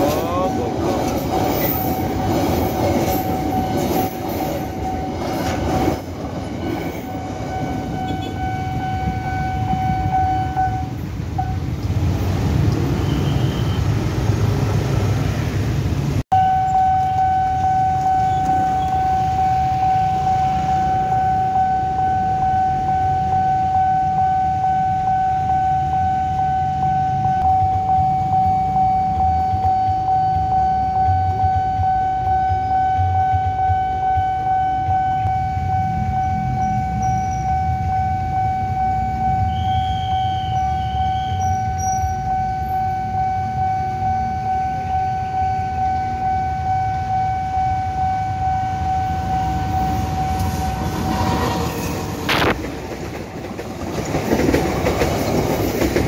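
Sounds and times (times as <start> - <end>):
crossing warning alarm tone: 0.0 - 12.2, 12.8 - 14.6, 16.3 - 56.0
freight wagons rumbling: 0.0 - 13.0, 49.3 - 56.0
motorbike traffic rumble: 4.7 - 56.0.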